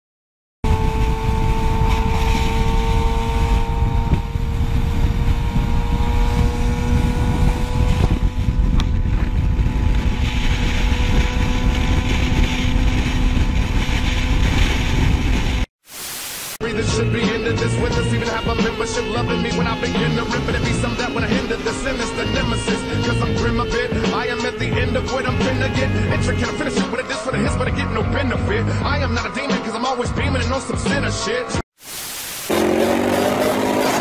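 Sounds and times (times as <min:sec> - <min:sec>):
motorcycle engine cruising: 0:00.6 - 0:15.7, 0:17.0 - 0:31.4, 0:32.5 - 0:34.0
wind buffeting microphone: 0:00.7 - 0:15.7.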